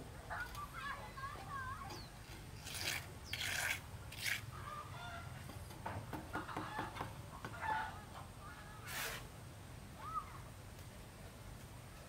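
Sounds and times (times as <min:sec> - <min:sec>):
chickens clucking: 0:06.3 - 0:08.7
scrapes: 0:08.8 - 0:09.3.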